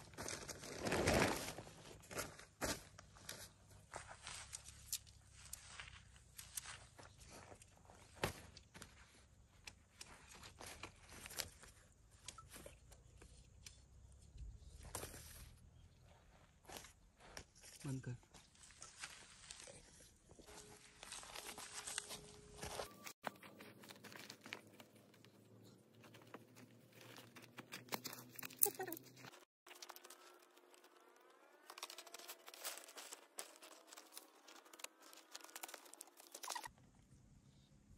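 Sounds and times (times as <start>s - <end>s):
footsteps on dry grass: 0.0s - 9.2s, 18.4s - 25.0s, 31.7s - 36.1s
light rustling of tent: 0.0s - 13.5s, 14.6s - 36.7s
tent fabric rustling: 0.3s - 2.3s, 18.5s - 25.4s, 31.6s - 36.7s
tent poles clicking and knocking: 21.4s - 36.7s.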